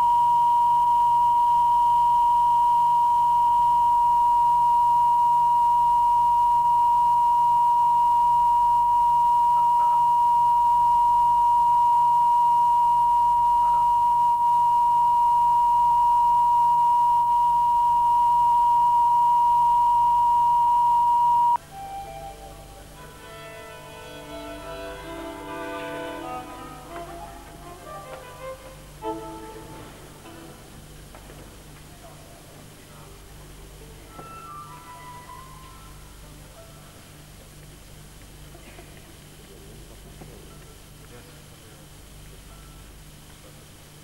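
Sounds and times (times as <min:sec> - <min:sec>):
test tone: 0:00.0 - 0:22.7
violins playing: 0:21.8 - 0:30.6.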